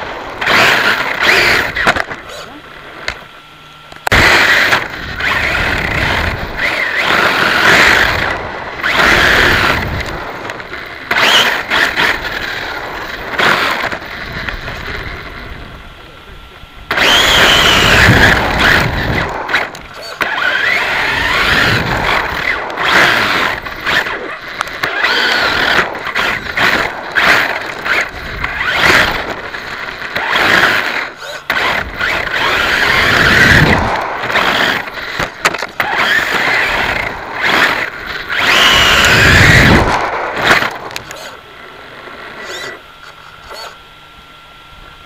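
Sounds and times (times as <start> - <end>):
electric motor whine: 0.0 - 45.0
faint hum: 0.0 - 45.0
tyre and wind noise: 16.9 - 40.9.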